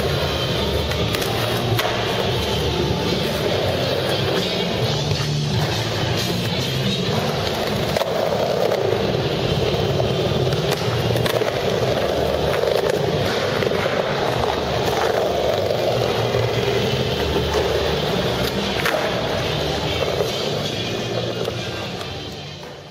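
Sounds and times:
skateboard wheels rolling on concrete: 0.0 - 22.9
skateboard clicks: 0.8 - 2.4, 10.4 - 22.9.

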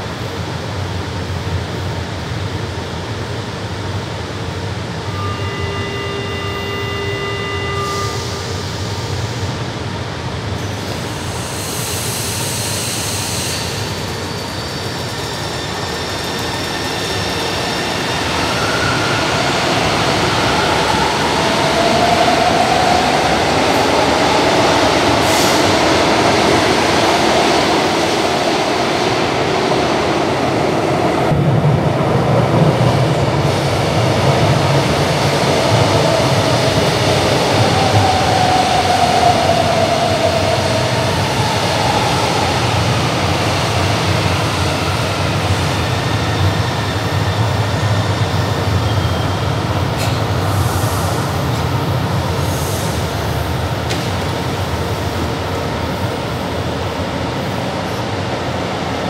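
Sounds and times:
train rumble and motor whine: 0.0 - 59.0
steady electronic tone: 5.1 - 8.8
hiss of air: 10.6 - 14.2.

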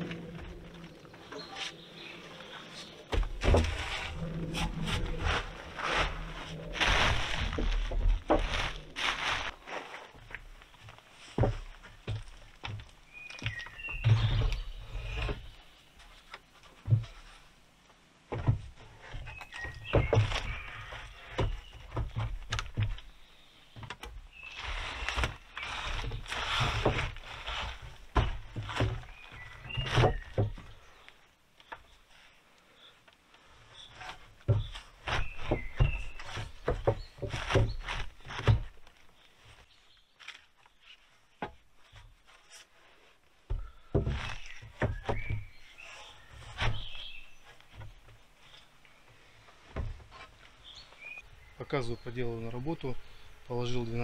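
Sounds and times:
wooden pole scraping and knocking: 0.0 - 17.5, 18.3 - 31.0, 33.4 - 51.2
plastic tarp rustling: 2.8 - 11.4, 24.3 - 30.8
heavy wood-on-wood thunks: 3.0 - 9.5, 11.4 - 15.6, 18.3 - 23.2, 23.8 - 30.8, 33.9 - 39.0, 43.4 - 48.2.

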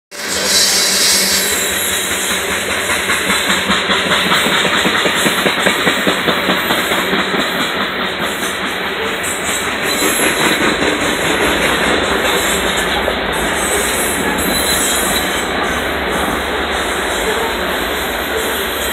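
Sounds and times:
train wheels rumbling on rail: 0.1 - 18.9.

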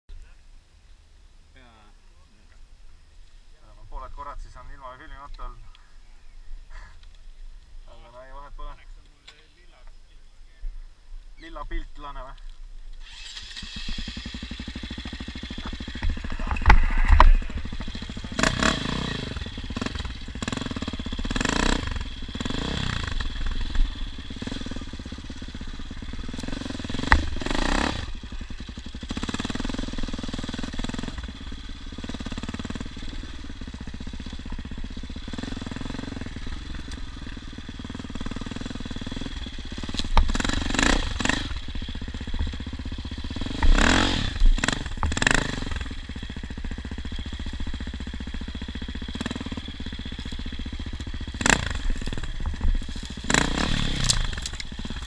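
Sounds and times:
engine revving: 13.0 - 55.0.

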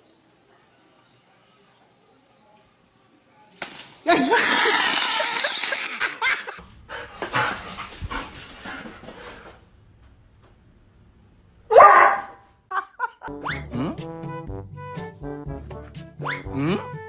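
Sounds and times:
dog barking loudly: 11.7 - 12.4
dog yipping: 11.7 - 12.4.

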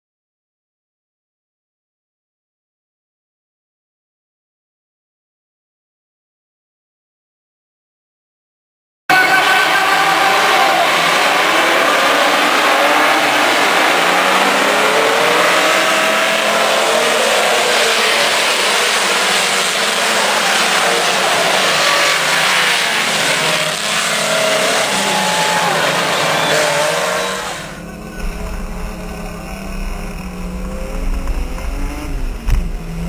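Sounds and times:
racing car engines revving: 9.1 - 33.0.

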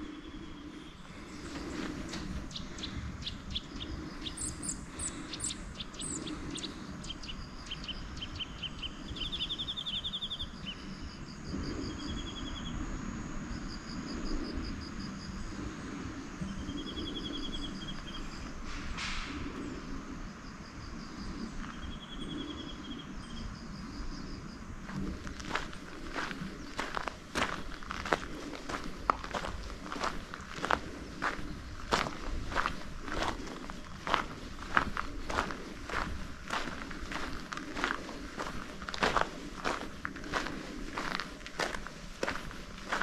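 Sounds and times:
songbird trills: 0.0 - 11.1, 16.4 - 19.8.

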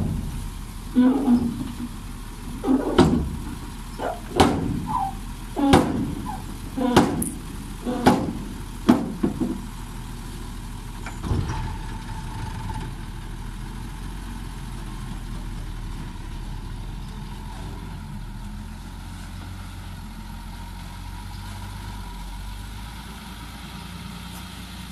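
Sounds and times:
loud metal bangs: 0.0 - 9.8
truck engine running: 0.0 - 24.9.

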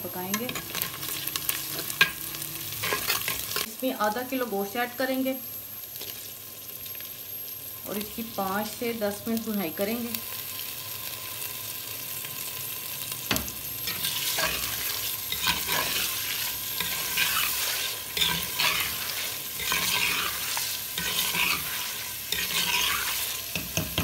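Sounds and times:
meat sizzling in hot oil: 0.0 - 24.0
metal spoon knocking on pot: 23.6 - 24.0.

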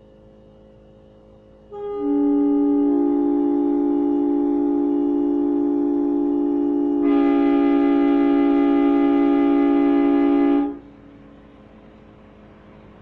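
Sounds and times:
train horn blowing a chord: 1.6 - 10.9.

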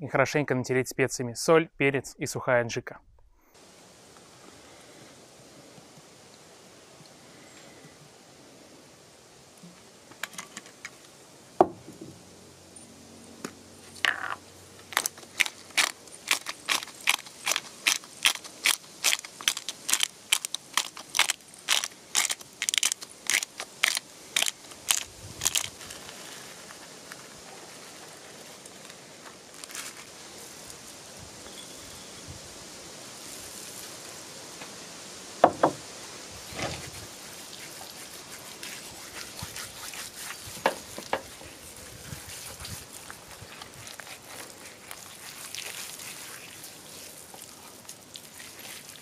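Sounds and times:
spice grinder crunching: 14.8 - 30.2
sharp knock: 35.4 - 35.8.

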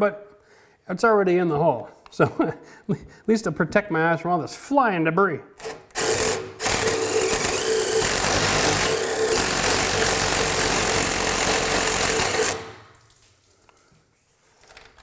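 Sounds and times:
power drill boring into wood: 5.6 - 12.8.

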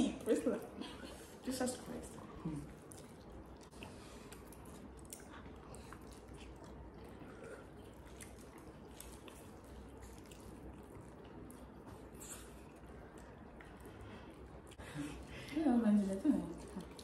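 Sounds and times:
low steady hum: 0.0 - 17.0
people chewing noodles: 0.0 - 17.0.

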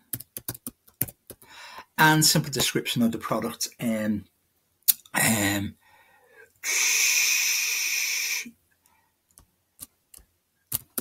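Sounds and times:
man breathing noisily: 1.4 - 2.0, 5.8 - 8.5.

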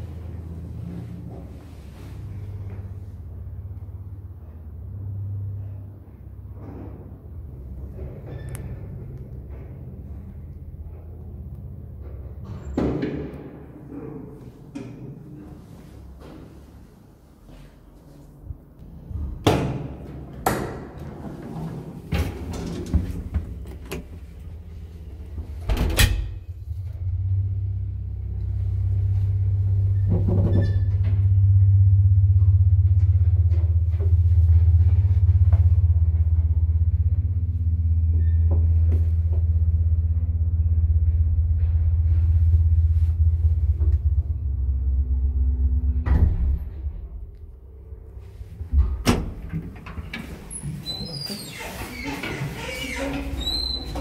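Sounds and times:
elevator running hum: 0.0 - 54.0
elevator doors clacking shut: 25.4 - 26.6, 48.6 - 54.0
elevator stopping clunk: 43.5 - 47.4.

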